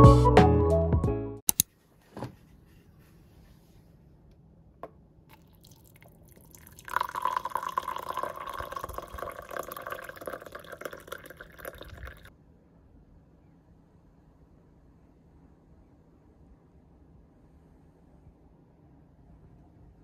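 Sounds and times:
water running: 5.3s - 12.3s.

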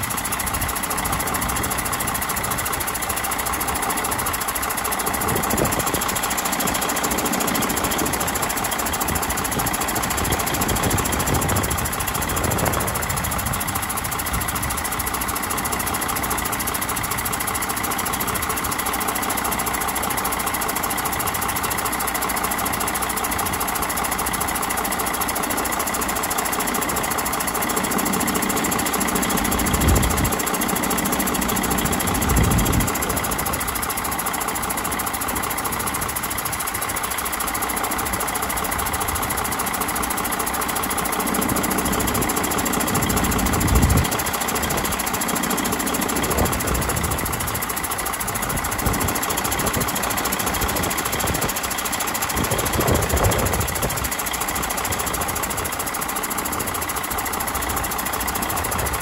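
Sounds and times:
diesel truck engine idling: 0.0s - 59.0s.

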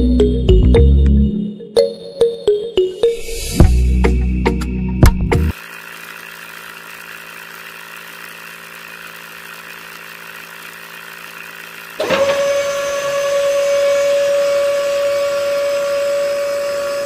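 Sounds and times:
small motor high whine: 5.5s - 17.0s
small motor humming: 5.5s - 17.0s.

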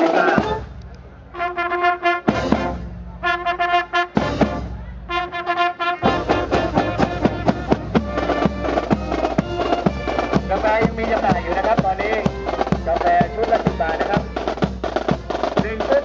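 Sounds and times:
marching brass fanfare: 0.0s - 16.0s
drums on quick steady beat: 2.2s - 3.1s, 4.1s - 5.2s, 6.0s - 16.0s.

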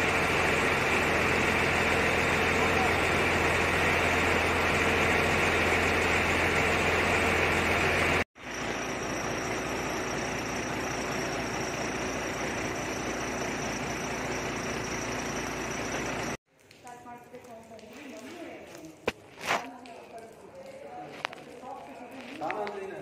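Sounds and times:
diesel engine running: 0.0s - 16.4s.

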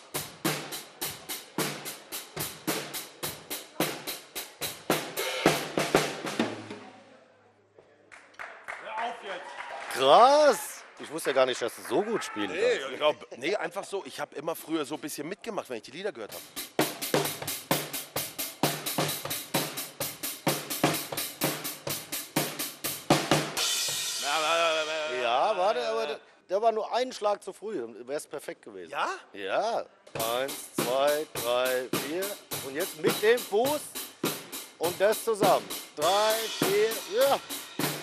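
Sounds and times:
drum kit beat: 0.0s - 6.9s, 16.3s - 25.6s, 30.1s - 38.0s.

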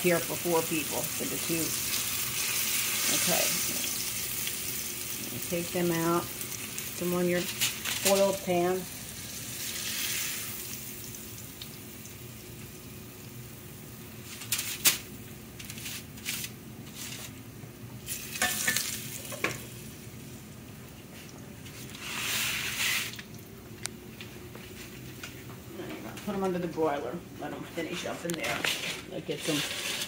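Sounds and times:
hot oil sizzling in a frying pan: 0.0s - 16.6s, 18.0s - 20.6s, 21.9s - 23.4s
utensils clinking against pans: 18.1s - 19.6s.

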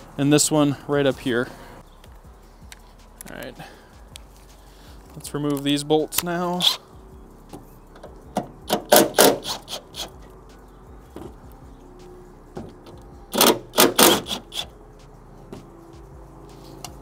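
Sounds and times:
ratchet wrench clicking: 7.5s - 10.4s, 12.7s - 14.8s.

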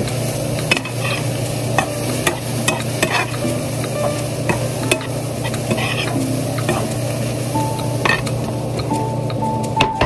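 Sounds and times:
food sizzling in a pan: 0.0s - 10.0s
low steady hum: 0.0s - 10.0s.

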